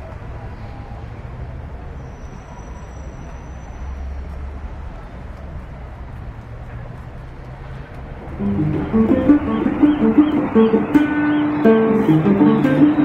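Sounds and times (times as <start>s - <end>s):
low outdoor rumble: 4.4s - 13.0s.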